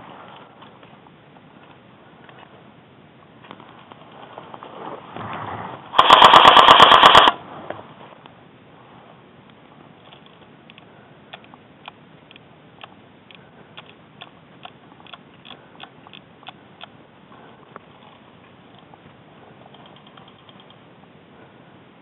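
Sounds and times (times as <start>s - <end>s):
airsoft gun full-auto burst: 5.9s - 7.4s
faint clicks: 9.5s - 17.0s, 19.6s - 20.8s.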